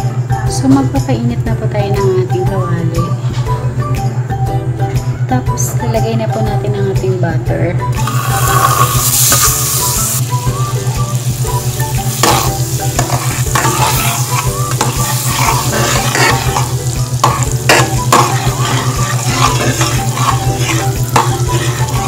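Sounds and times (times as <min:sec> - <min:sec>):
steady low hum: 0:00.0 - 0:22.0
metal spatula scraping a pan: 0:08.0 - 0:10.2, 0:12.1 - 0:22.0
butter sizzling and bubbling: 0:08.0 - 0:22.0.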